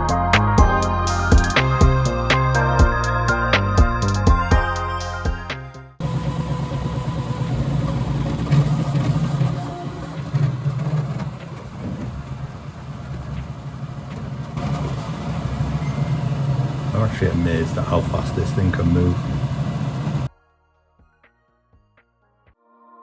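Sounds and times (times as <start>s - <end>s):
background music: 0.0s - 6.0s, 20.1s - 23.0s.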